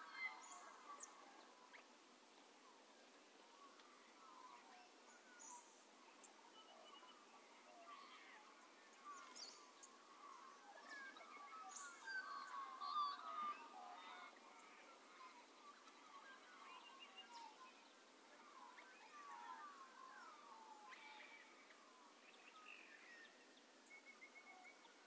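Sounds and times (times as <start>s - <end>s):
birds chirping and warbling: 0.0s - 25.0s.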